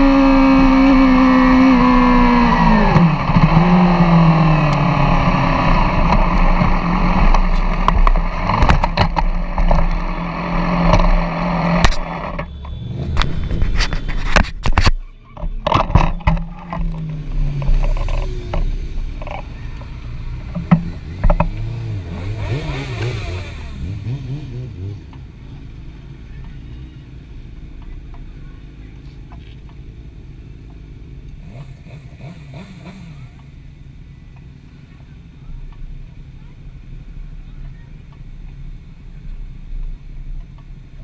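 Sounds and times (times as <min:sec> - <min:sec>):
engines and road traffic rumble: 0:00.0 - 0:41.0
knocks and clatters of motorcycle: 0:00.0 - 0:41.0.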